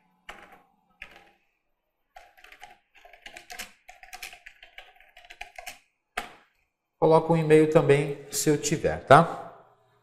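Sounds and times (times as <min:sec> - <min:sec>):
computer keyboard typing: 0:00.0 - 0:01.5, 0:02.1 - 0:06.4.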